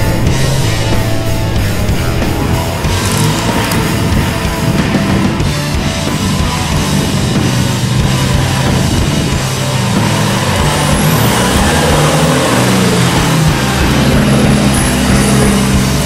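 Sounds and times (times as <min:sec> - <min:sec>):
heavy rock music: 0:00.0 - 0:16.0
vehicle engine climbing: 0:00.0 - 0:16.0.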